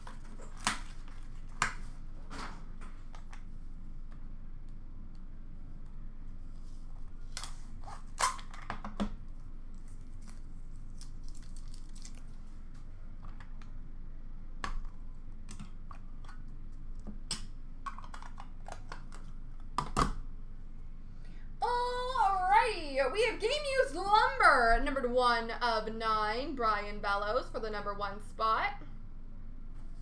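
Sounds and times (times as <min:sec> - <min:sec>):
steady low hum: 0:00.0 - 0:30.0
trading cards and plastic holders handled: 0:14.6 - 0:20.2.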